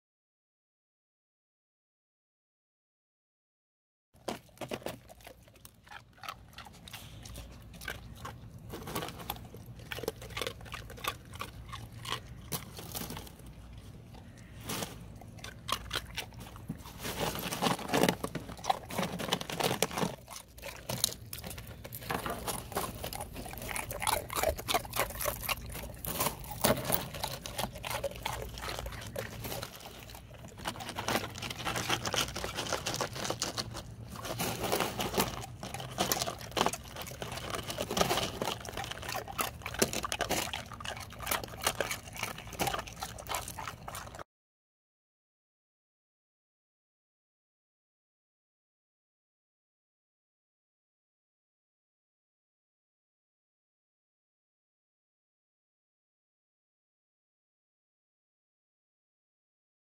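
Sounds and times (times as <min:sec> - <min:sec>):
dogs crunching ice cubes: 0:04.2 - 0:44.2.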